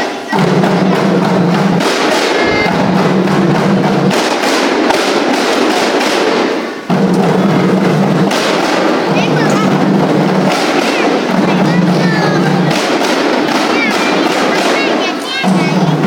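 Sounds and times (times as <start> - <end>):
frame drums slapped in rhythm: 0.0 - 16.0
steady low tone: 2.3 - 4.1.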